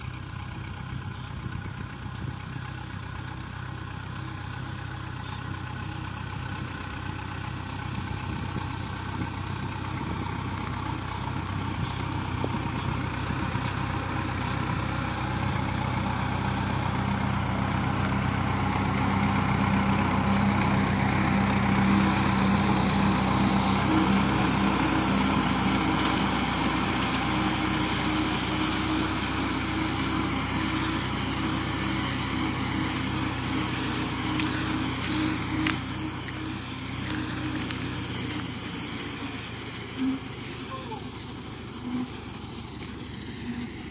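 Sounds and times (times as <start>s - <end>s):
tractor engine running: 0.0s - 43.9s.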